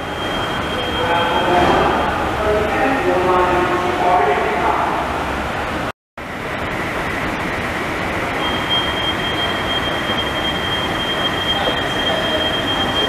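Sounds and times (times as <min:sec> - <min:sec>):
station and train rushing noise: 0:00.0 - 0:13.0
thin high whine: 0:08.3 - 0:13.0.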